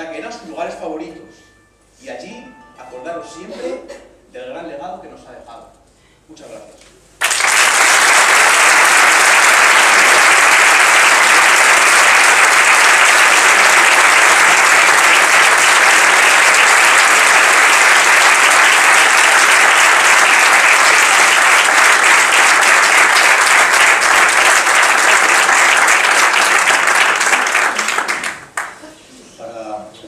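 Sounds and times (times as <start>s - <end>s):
audience applauding: 7.2s - 28.8s.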